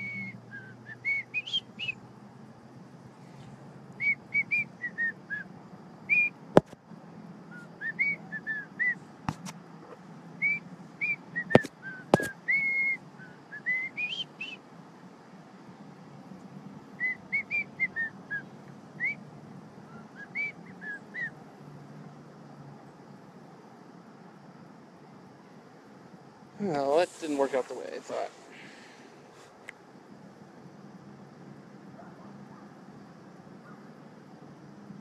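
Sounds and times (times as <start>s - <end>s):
man whistling a tune: 0.0s - 2.0s, 6.1s - 6.3s, 7.8s - 9.0s, 10.4s - 14.6s, 20.2s - 21.3s.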